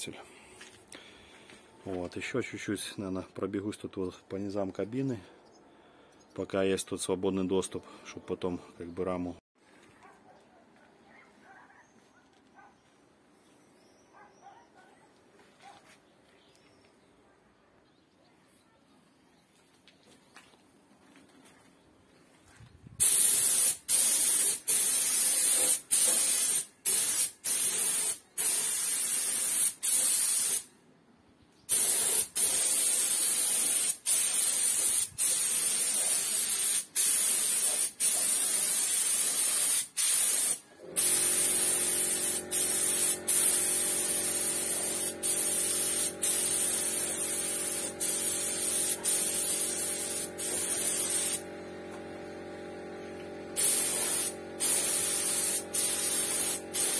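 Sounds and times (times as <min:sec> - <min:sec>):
compressed-air gun hissing: 0:23.0 - 0:30.7, 0:31.7 - 0:56.9
air compressor motor humming: 0:40.8 - 0:56.9.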